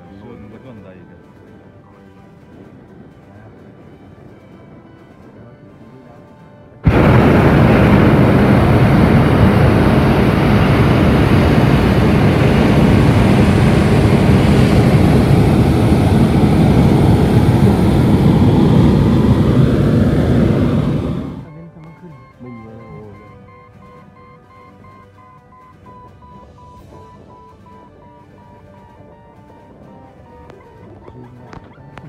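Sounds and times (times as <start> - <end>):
propane burner flame rushing: 6.8 - 21.5.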